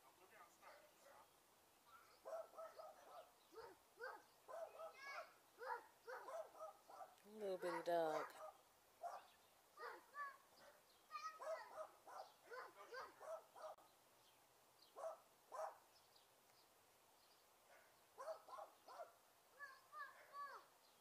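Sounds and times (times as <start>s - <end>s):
small dog yapping: 2.0s - 7.1s, 7.7s - 13.8s, 15.0s - 15.8s.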